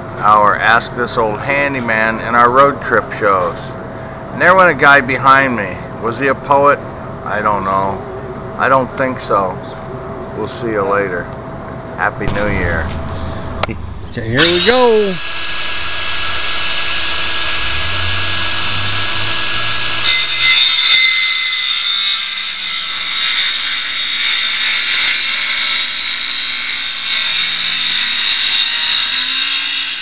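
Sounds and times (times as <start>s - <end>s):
circular saw cutting wood: 12.2s - 30.0s.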